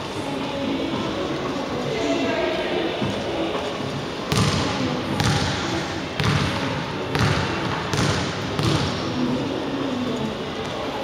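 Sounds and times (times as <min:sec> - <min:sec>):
ball bouncing on gym floor: 0:04.3 - 0:09.1.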